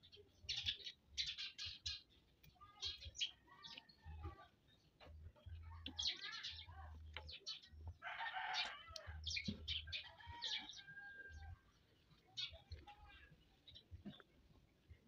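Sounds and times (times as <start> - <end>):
chickens clucking: 0.0 - 15.0
rooster crowing: 8.0 - 9.1, 10.0 - 11.5.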